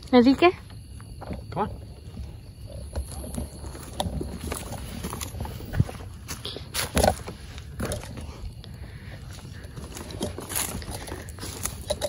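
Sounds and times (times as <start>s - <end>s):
footsteps crunching through undergrowth: 3.0s - 8.2s, 9.2s - 12.0s.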